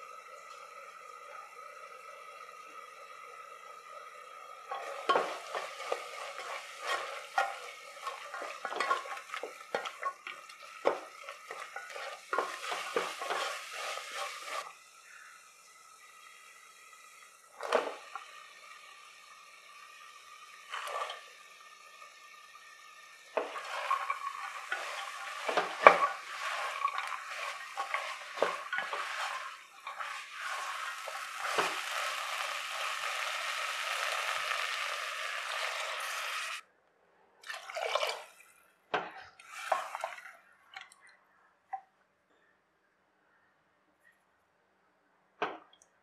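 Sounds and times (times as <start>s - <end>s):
steady sizzle: 0.0s - 36.6s, 39.4s - 40.6s
water splashing into pot: 4.4s - 14.8s, 15.4s - 36.6s, 37.4s - 38.5s, 39.4s - 41.0s
wooden spatula scraping pot: 4.7s - 14.7s, 20.7s - 21.2s, 23.4s - 33.2s.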